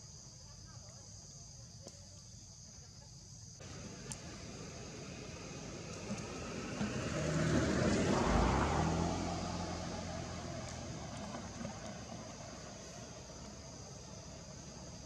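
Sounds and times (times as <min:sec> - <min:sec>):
motor vehicle passing by: 0:03.6 - 0:15.0.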